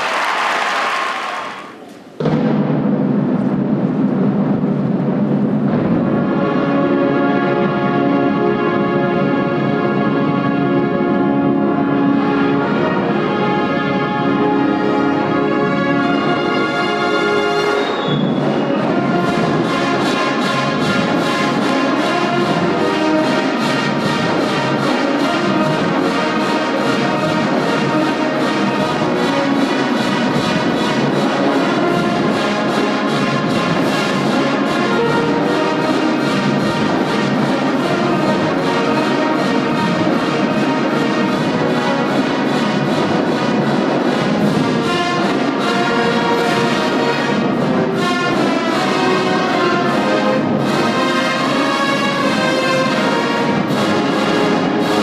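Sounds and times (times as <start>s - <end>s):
brass and woodwinds sustained chords: 6.1s - 55.0s
drumline beat: 18.3s - 55.0s.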